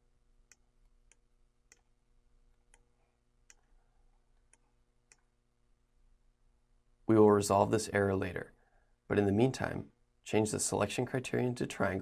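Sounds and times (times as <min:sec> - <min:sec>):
computer mouse clicks: 0:00.5 - 0:01.9, 0:02.5 - 0:03.8.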